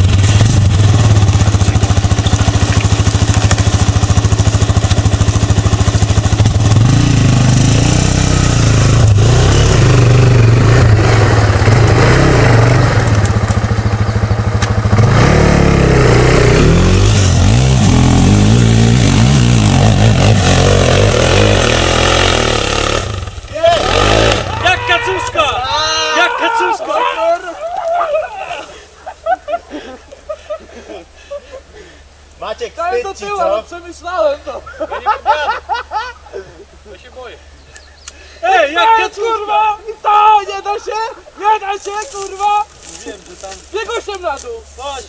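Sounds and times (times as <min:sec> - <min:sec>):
quad engine revving: 0:00.0 - 0:25.9.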